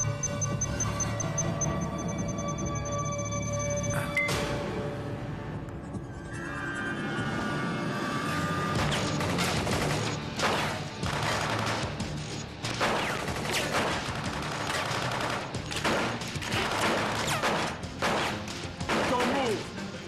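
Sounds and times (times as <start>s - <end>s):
background music: 0.0s - 20.0s
rapid gunfire: 8.8s - 12.1s, 12.7s - 19.6s.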